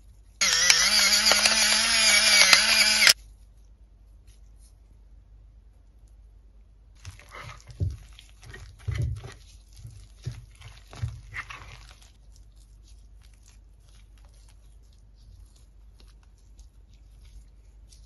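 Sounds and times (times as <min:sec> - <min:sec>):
spoon stirring in a ceramic dish: 0:07.0 - 0:13.0.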